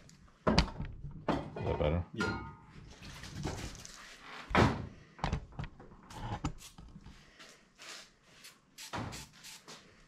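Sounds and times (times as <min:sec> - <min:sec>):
aerosol can spraying: 0:07.8 - 0:09.8.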